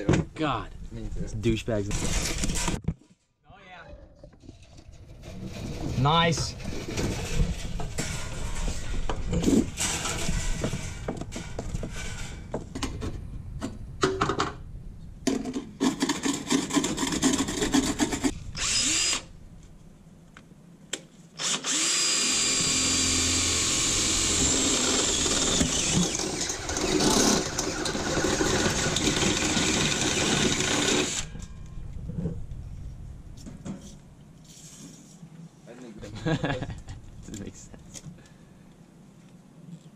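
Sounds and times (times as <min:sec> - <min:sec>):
knocks and clatter: 0:04.0 - 0:14.6
drill boring through metal: 0:18.6 - 0:19.3, 0:21.4 - 0:31.3.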